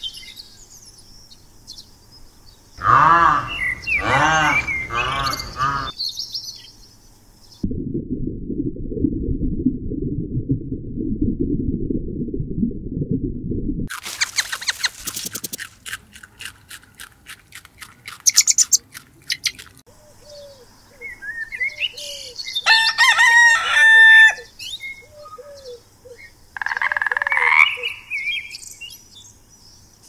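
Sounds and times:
frog rasping croak: 2.8s - 5.9s, 26.6s - 27.8s
rooster crowing: 2.8s - 5.9s, 22.6s - 24.5s
rabbit nibbling grass clicks: 13.9s - 19.8s.

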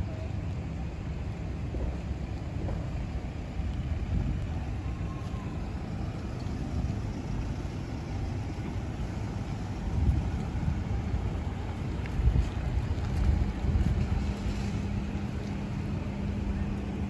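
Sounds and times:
car driving slowly past: 0.0s - 17.0s
low rumble of vehicle engines: 0.0s - 17.0s
wind on the microphone: 1.5s - 5.4s, 9.8s - 15.3s.

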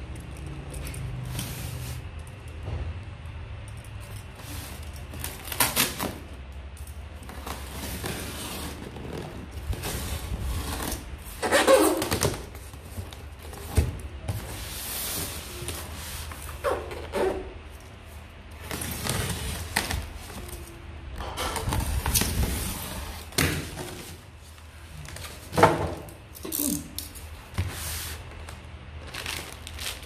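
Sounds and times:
plastic film rustling and scraping: 7.2s - 20.8s, 21.6s - 25.6s, 27.4s - 30.0s.

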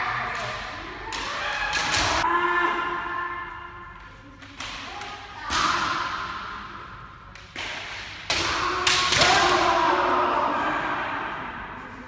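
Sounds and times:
people shouting: 8.4s - 11.6s.

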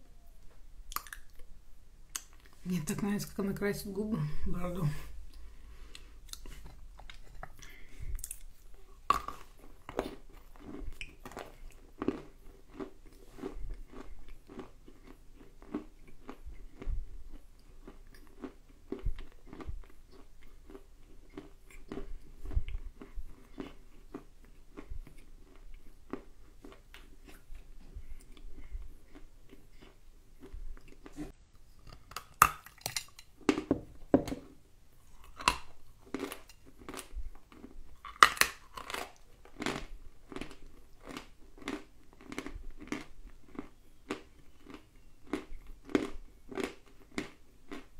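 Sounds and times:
person chewing crunchy clay: 0.4s - 1.5s, 5.2s - 47.9s.

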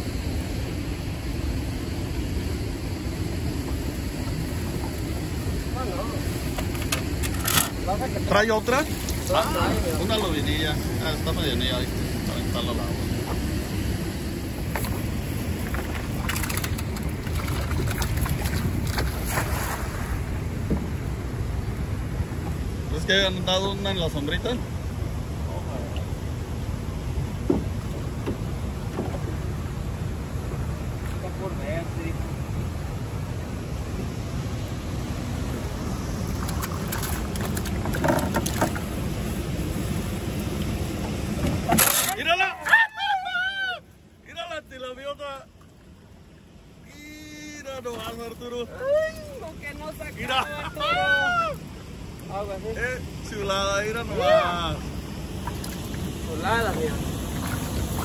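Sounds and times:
wind rumble on microphone: 0.0s - 41.8s, 54.6s - 58.0s
flowing river water: 0.0s - 58.0s
light clicks and splashes: 8.7s - 9.5s, 15.6s - 20.1s, 36.2s - 38.9s, 55.4s - 56.1s
water splashing and dripping: 8.8s - 9.4s, 36.2s - 38.9s.

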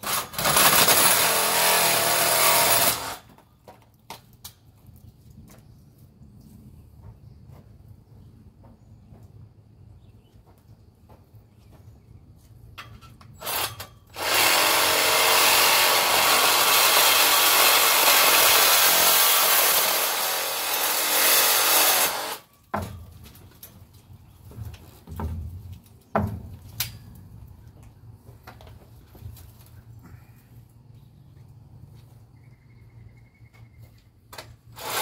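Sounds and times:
reciprocating saw cutting metal: 0.0s - 3.3s, 13.4s - 22.5s, 34.8s - 35.0s.

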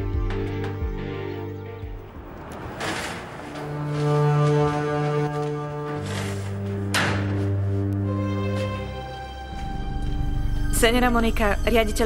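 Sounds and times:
soft sustained score music: 3.5s - 12.0s.

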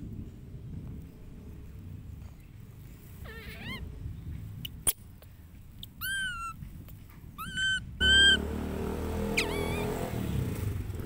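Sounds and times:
baby monkey squealing: 3.2s - 3.8s, 6.0s - 6.6s, 7.4s - 8.4s, 9.2s - 10.2s.

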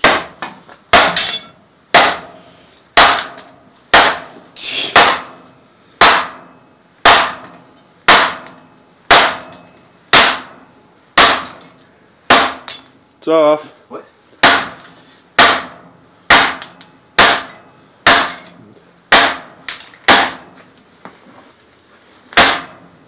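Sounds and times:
hammer striking metal: 0.0s - 2.4s, 3.0s - 4.4s, 5.0s - 10.6s, 11.2s - 11.7s, 12.3s - 12.9s, 14.4s - 14.8s, 15.4s - 20.5s, 22.4s - 22.8s.

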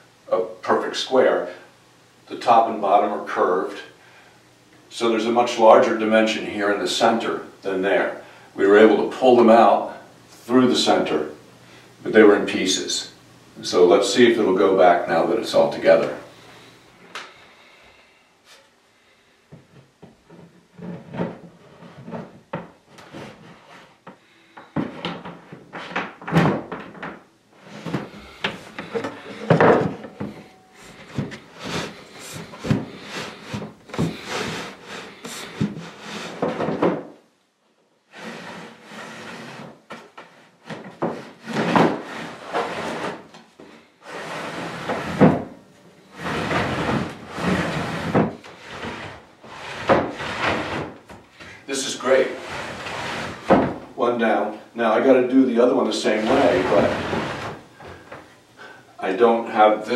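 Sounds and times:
wooden slats sliding and rubbing: 19.6s - 37.1s, 38.1s - 54.0s, 55.9s - 58.3s.

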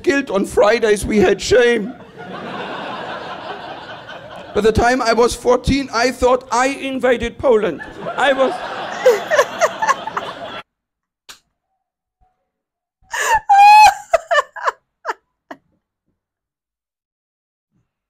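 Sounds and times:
stand-up comedy recording: 0.0s - 10.6s, 13.1s - 14.8s
woman laughing with squeals: 7.8s - 10.6s, 13.1s - 15.2s.

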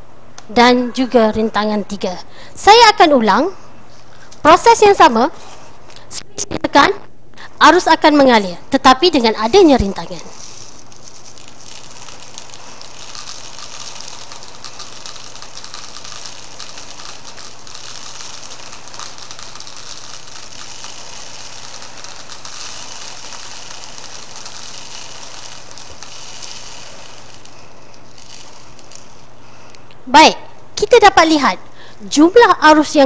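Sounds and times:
magnets rattling down plastic tube: 9.1s - 30.0s.

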